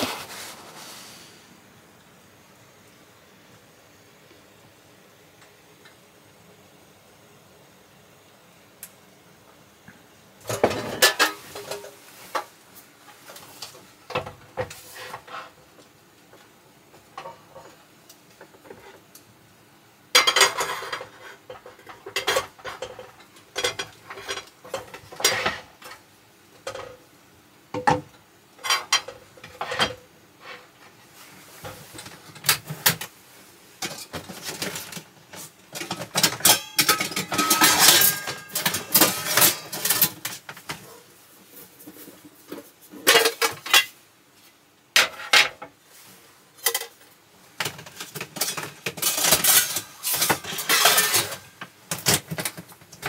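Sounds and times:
cookware clinking and clattering: 10.4s - 12.5s, 20.1s - 26.0s, 26.6s - 27.0s, 27.8s - 30.7s, 33.8s - 41.0s, 41.8s - 44.0s, 45.0s - 45.7s, 46.6s - 53.0s.

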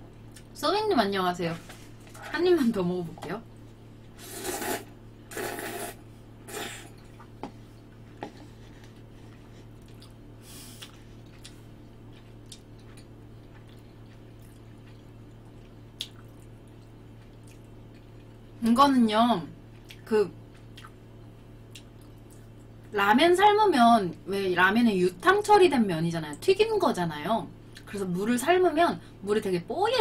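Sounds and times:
wet slurping mouth sounds: 4.2s - 7.0s
quiet chewing: 6.9s - 18.4s.

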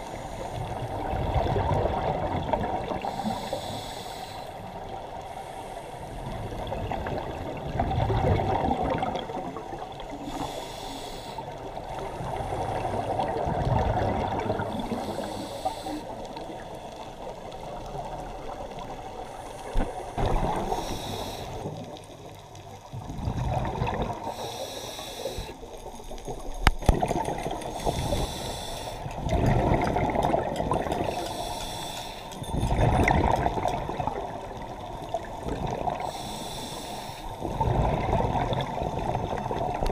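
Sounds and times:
gurgling exhaled bubbles: 0.6s - 3.2s, 6.3s - 10.2s, 11.8s - 15.2s, 19.7s - 21.0s, 22.8s - 24.5s, 25.4s - 28.2s, 29.1s - 31.3s, 32.4s - 36.1s, 37.4s - 39.9s
underwater regulator breathing: 3.0s - 4.7s, 10.2s - 11.6s, 14.8s - 17.0s, 19.2s - 21.9s, 24.1s - 25.6s, 27.4s - 33.8s, 35.8s - 37.6s.

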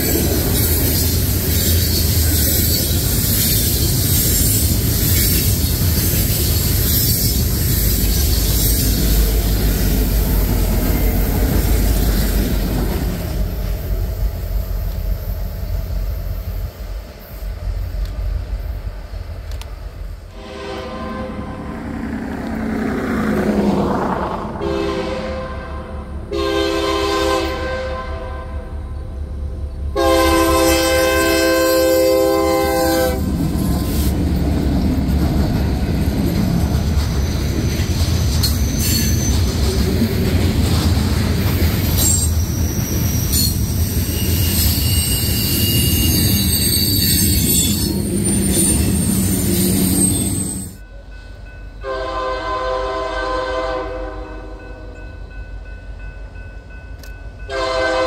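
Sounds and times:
train wheels rumbling on rail: 0.0s - 58.0s
train air horn: 20.3s - 21.8s, 24.6s - 28.9s, 29.9s - 34.0s, 51.8s - 55.0s, 57.5s - 58.0s
squealing wheel flanges: 38.3s - 39.7s, 41.8s - 50.8s.

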